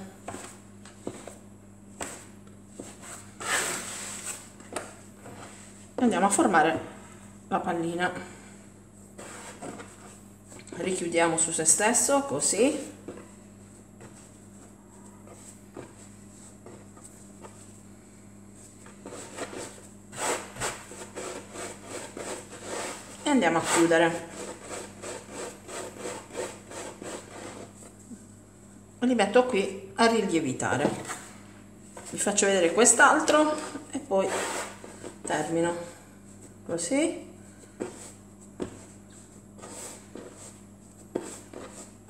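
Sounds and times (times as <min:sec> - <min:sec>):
hands rubbing dough on board: 0:00.2 - 0:06.4, 0:09.2 - 0:10.2, 0:12.6 - 0:17.9, 0:18.5 - 0:28.2, 0:31.9 - 0:36.8, 0:37.5 - 0:42.0
dough scraper rasping: 0:02.8 - 0:04.3, 0:19.0 - 0:27.8, 0:33.2 - 0:35.0.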